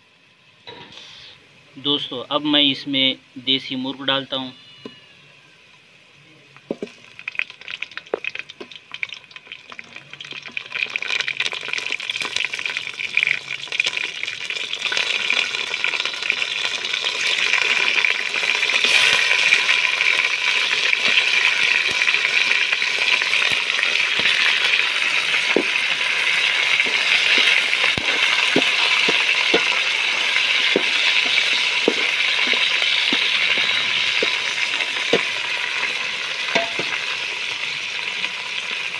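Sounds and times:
chicken sizzling in hot oil: 0:06.5 - 0:38.9
metal spoon clinking on pot: 0:36.6 - 0:37.0.

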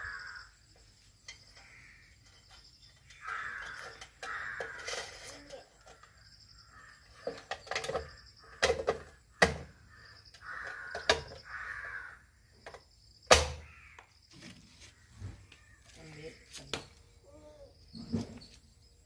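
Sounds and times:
crow cawing: 0:00.0 - 0:00.5, 0:01.6 - 0:02.1, 0:03.1 - 0:05.1, 0:06.6 - 0:07.3, 0:09.4 - 0:12.3, 0:13.6 - 0:14.1.

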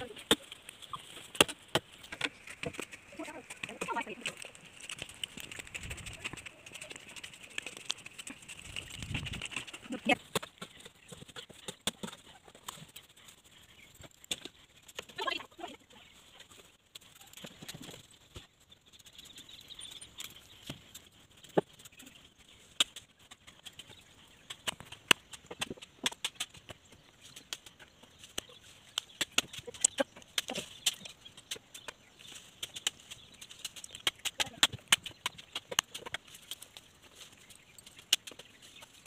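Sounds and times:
branches knocking and snapping: 0:00.0 - 0:15.4, 0:22.7 - 0:39.0.

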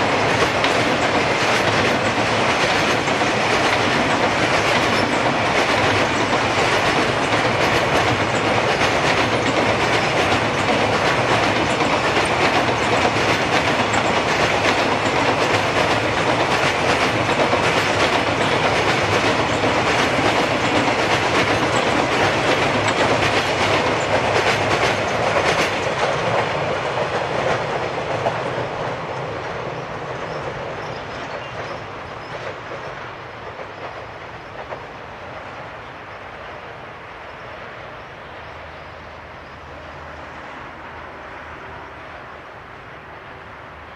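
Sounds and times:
train wheels clattering: 0:00.0 - 0:36.7.

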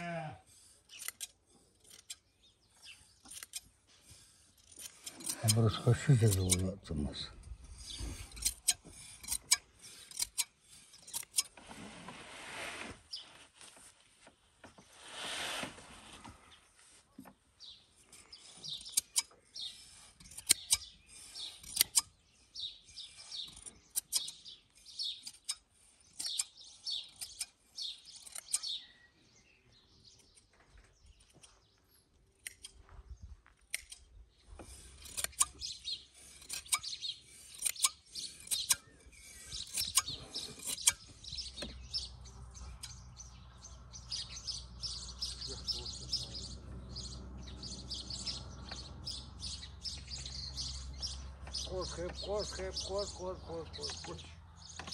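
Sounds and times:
small birds chirping: 0:00.1 - 0:11.6, 0:13.1 - 0:14.0, 0:16.4 - 0:54.9
sheep shears snipping fleece: 0:34.6 - 0:42.1.

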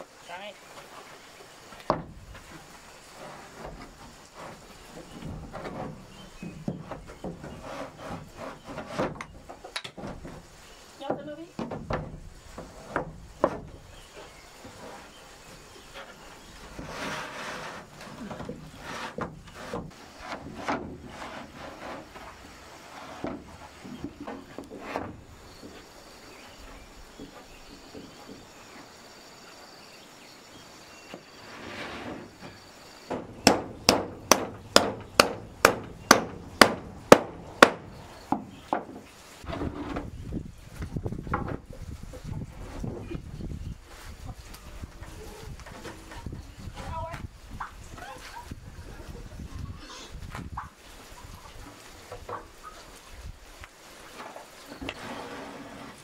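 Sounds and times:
hammer striking roofing sheets: 0:33.1 - 0:39.0.

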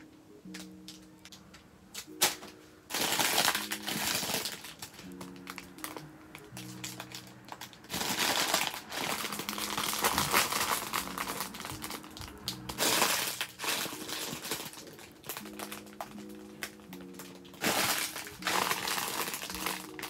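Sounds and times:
soft background music: 0:00.0 - 0:20.0
plastic bag crinkling: 0:02.1 - 0:20.0.

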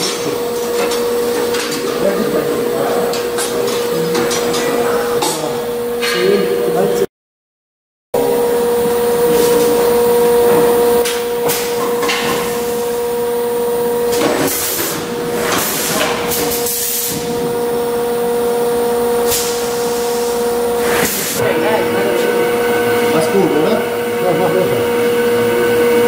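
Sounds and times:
packing machine humming: 0:00.0 - 0:07.0, 0:08.2 - 0:26.0
pneumatic air hisses: 0:14.4 - 0:17.3, 0:19.2 - 0:21.4.

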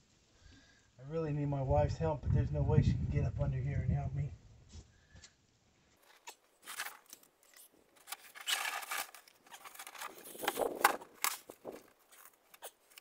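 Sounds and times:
board scraping and rustling: 0:06.0 - 0:13.0.

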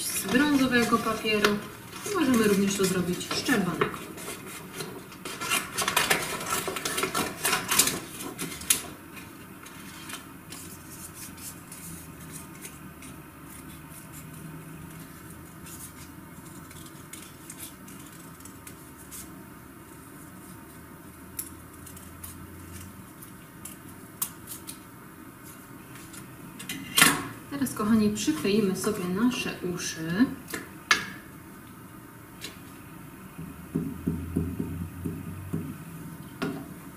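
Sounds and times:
paper rustling: 0:00.0 - 0:19.3
scissors snipping paper: 0:00.1 - 0:08.8, 0:15.6 - 0:19.3, 0:21.4 - 0:24.8.

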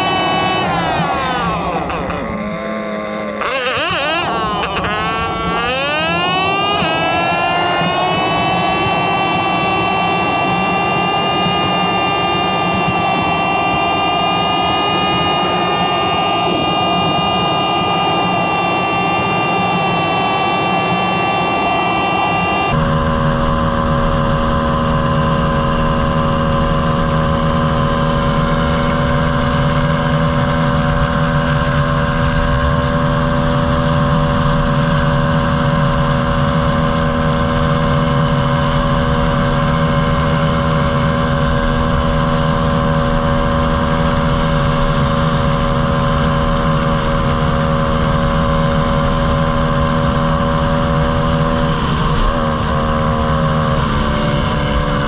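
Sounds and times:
pit bike engines running: 0:00.0 - 0:23.0.

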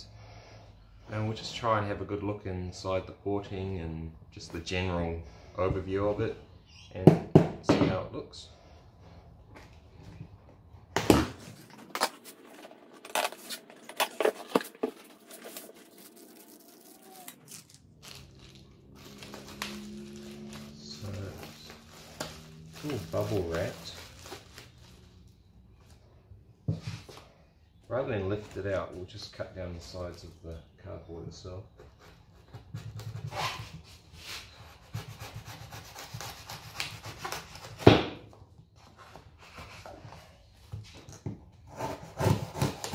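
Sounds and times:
knife sawing through cardboard: 0:33.0 - 0:37.9, 0:41.7 - 0:42.9.

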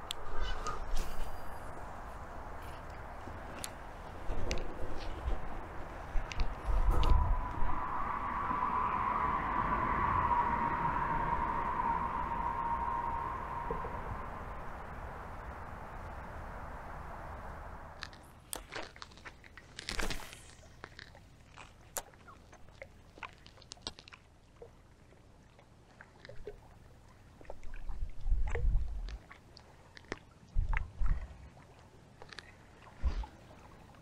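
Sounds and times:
steady rushing noise: 0:00.0 - 0:18.0
wind rumble on microphone: 0:00.0 - 0:18.3, 0:27.5 - 0:29.2, 0:30.5 - 0:31.6, 0:32.9 - 0:34.0.

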